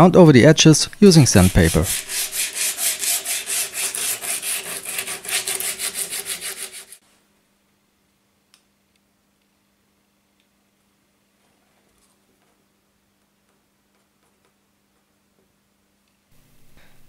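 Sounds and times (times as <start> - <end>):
sandpaper rubbing on wood: 1.0 - 7.0.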